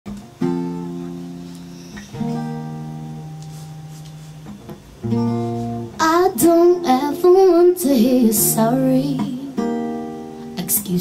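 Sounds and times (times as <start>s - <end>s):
acoustic guitar chords: 0.1s - 11.0s.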